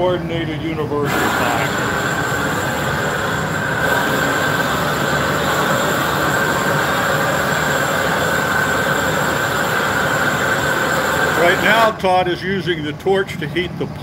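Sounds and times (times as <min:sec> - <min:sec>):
gas torch rushing: 0:01.0 - 0:12.4
faint steady whistle: 0:01.1 - 0:11.9.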